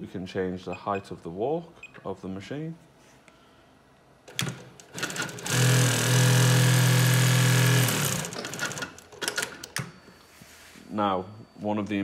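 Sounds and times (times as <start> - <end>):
industrial sewing machine sewing: 4.3 - 9.5.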